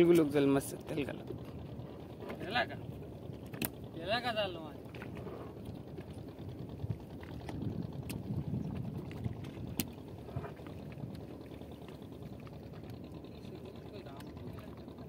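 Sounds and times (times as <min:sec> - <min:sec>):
water sloshing and dripping: 0:00.0 - 0:15.0
sharp clicks: 0:03.5 - 0:03.8.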